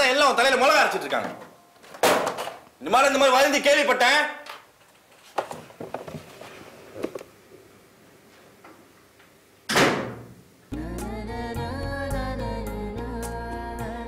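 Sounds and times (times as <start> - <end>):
faint knocks and rustles: 4.8 - 7.3
music with chords and bass: 10.7 - 14.0.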